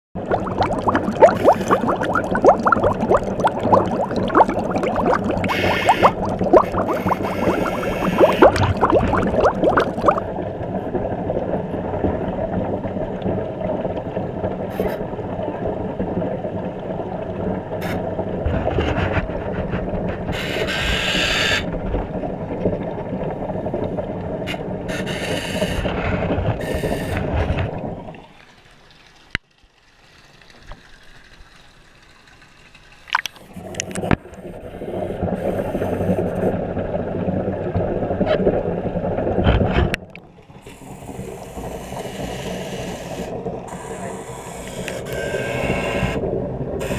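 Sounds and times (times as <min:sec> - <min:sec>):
underwater propeller motor humming: 0:00.2 - 0:10.2
hissing water noise: 0:00.2 - 0:10.3, 0:24.5 - 0:36.6, 0:40.4 - 0:46.9
bubbly crackling: 0:00.2 - 0:10.4, 0:27.4 - 0:34.2.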